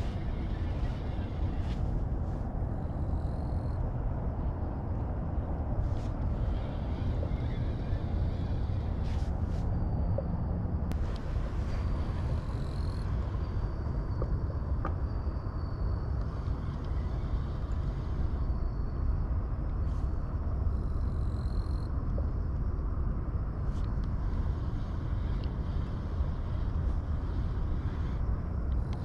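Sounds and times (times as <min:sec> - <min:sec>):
faint ticks: 0:23.6 - 0:29.0.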